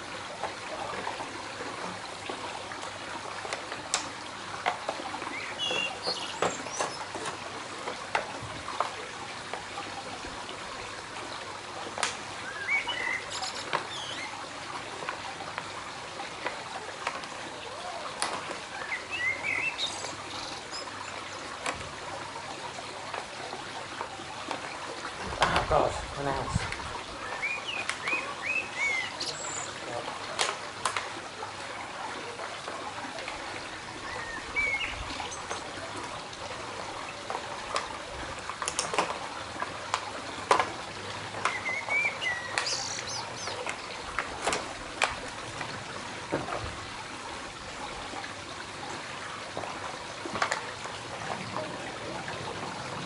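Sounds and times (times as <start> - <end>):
small birds chirping: 5.3 - 7.1, 12.4 - 14.4, 18.8 - 21.2, 27.2 - 29.9, 34.0 - 35.8, 41.4 - 44.0.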